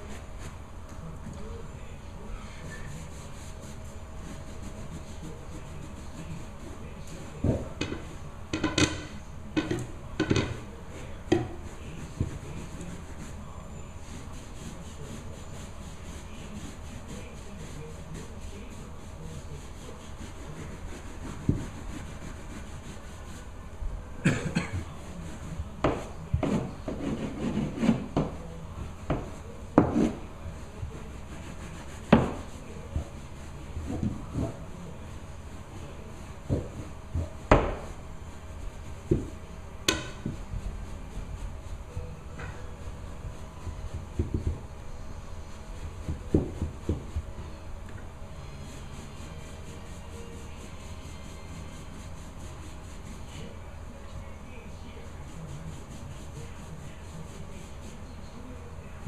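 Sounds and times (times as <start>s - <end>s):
steady low hum: 0.0s - 59.0s
hoses knocking and scraping on floor: 7.2s - 12.8s, 38.8s - 40.6s, 46.0s - 47.3s.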